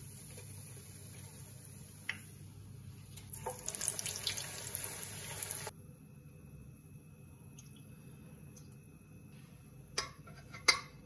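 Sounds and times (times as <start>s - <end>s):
hot oil sizzling and popping: 0.0s - 2.4s, 3.1s - 5.7s.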